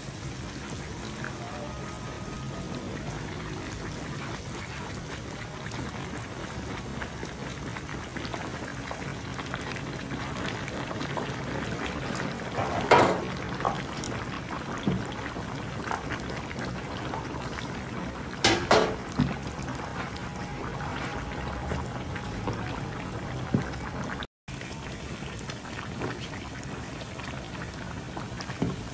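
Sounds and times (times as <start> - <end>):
pot of liquid bubbling: 0.0 - 28.9
splashing or clattering: 18.4 - 19.4.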